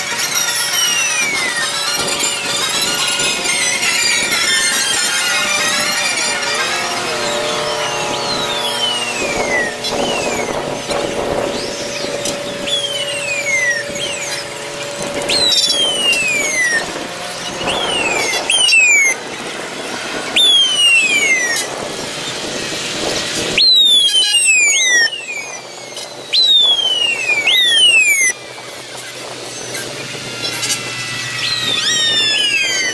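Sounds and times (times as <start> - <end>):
fire engine sirens wailing: 0.0 - 32.9.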